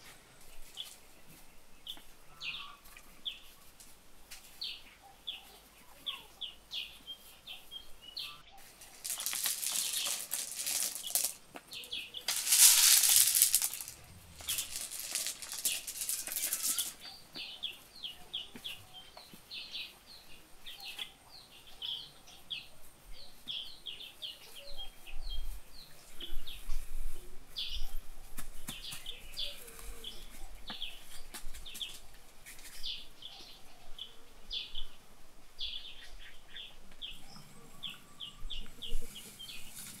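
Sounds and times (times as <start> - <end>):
small birds chirping: 0.0 - 40.0
loud rustling hiss: 8.7 - 17.0.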